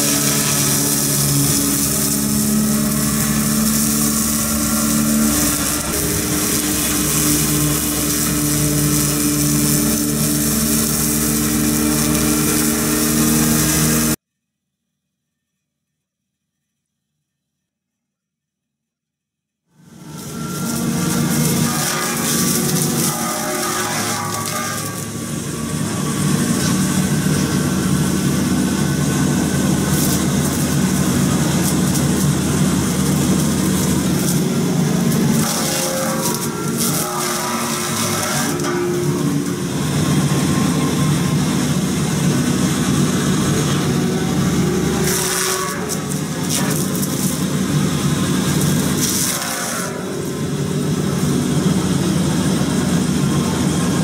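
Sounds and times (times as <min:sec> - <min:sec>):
engine and hydraulics droning: 0:00.0 - 0:14.2, 0:19.8 - 0:54.0
hydraulic hiss: 0:00.0 - 0:14.2
rotary cutter cutting grass: 0:00.0 - 0:14.2, 0:19.8 - 0:54.0.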